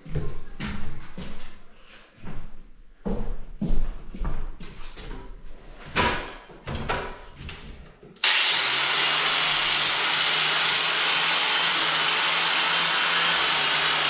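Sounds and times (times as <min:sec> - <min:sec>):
power tool sanding stone: 0:08.2 - 0:14.0.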